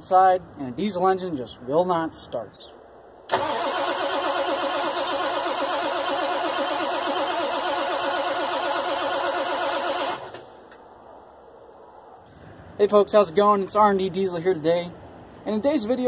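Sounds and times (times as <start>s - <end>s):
diesel engine cranking: 3.3s - 10.8s.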